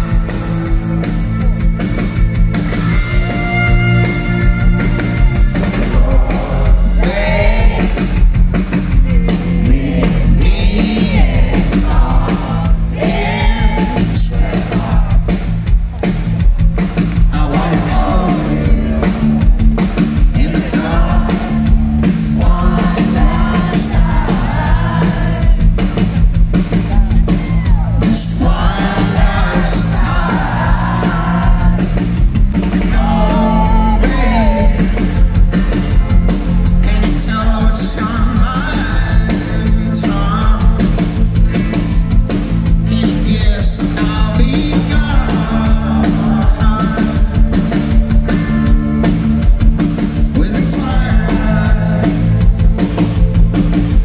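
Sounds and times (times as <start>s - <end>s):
live rock band: 0.0s - 54.0s
man singing: 5.6s - 8.3s, 9.3s - 15.3s, 17.2s - 19.6s, 20.2s - 25.6s, 28.0s - 32.0s, 32.7s - 35.2s, 36.8s - 41.2s, 42.7s - 47.7s, 50.2s - 52.6s.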